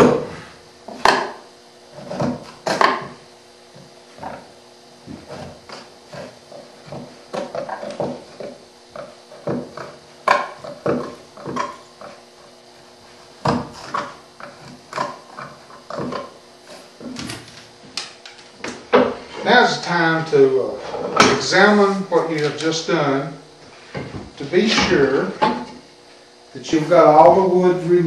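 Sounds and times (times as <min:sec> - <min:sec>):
chisel paring wood: 0:00.9 - 0:01.4, 0:02.0 - 0:03.2, 0:13.4 - 0:16.4.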